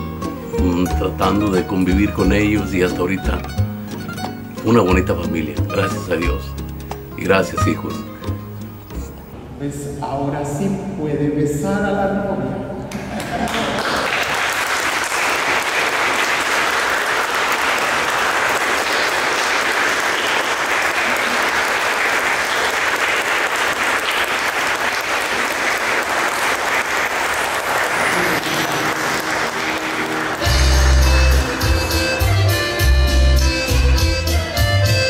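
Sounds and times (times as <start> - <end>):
crowd applauding: 13.0 - 33.9.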